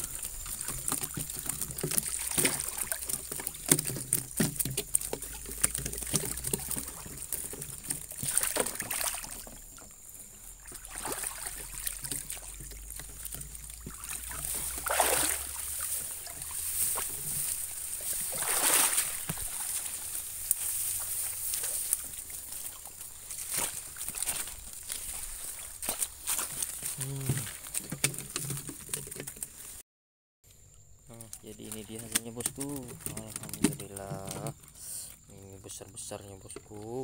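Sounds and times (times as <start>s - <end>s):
swishes in water: 0.0s - 4.1s, 5.4s - 9.6s, 10.5s - 25.8s
small knocks and clatter: 0.0s - 29.8s, 30.5s - 37.0s
water sloshing and splashing: 0.0s - 29.8s, 31.1s - 37.0s.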